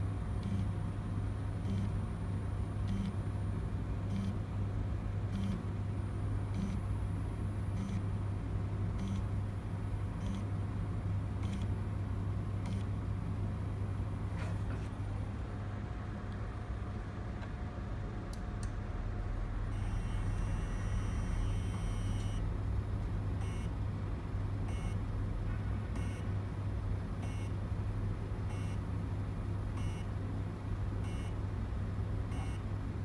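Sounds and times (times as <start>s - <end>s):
printer stepper motors humming: 0.0s - 3.3s, 5.2s - 13.6s, 19.6s - 22.4s.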